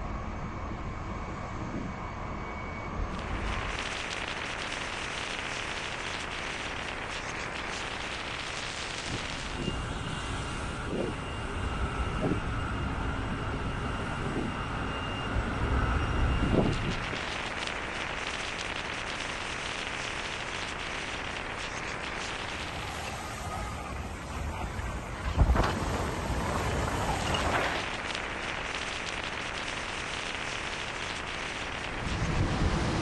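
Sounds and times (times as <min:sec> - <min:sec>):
faint high whine: 0:00.0 - 0:33.0
low surges: 0:20.6 - 0:33.0
wind and sea rushing: 0:22.6 - 0:28.6, 0:31.9 - 0:33.0.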